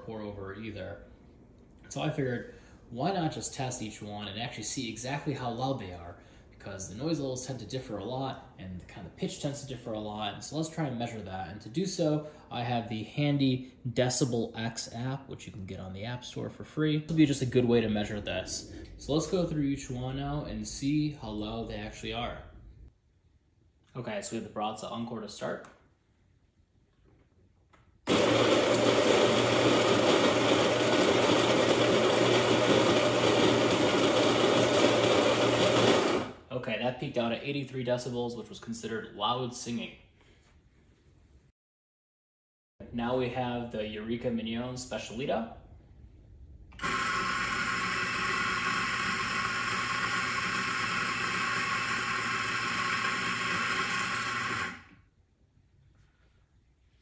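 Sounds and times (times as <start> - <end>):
coffee grinder whirring: 28.1 - 36.4, 46.8 - 55.0
coffee beans being ground: 46.8 - 54.8.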